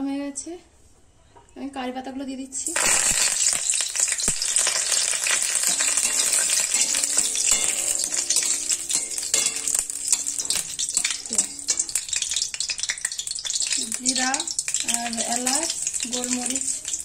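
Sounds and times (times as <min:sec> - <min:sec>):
leaves sizzling in hot oil: 0:02.6 - 0:17.0
metal spatula scraping pan: 0:03.1 - 0:13.8.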